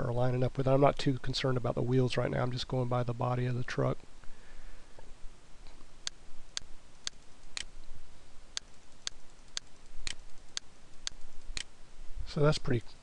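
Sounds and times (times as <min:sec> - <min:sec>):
computer mouse clicking: 0:08.6 - 0:11.7.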